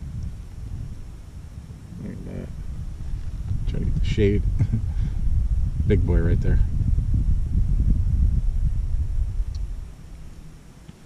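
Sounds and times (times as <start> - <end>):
wind buffeting microphone: 0.0 - 11.0
man's voice murmuring: 3.7 - 5.0.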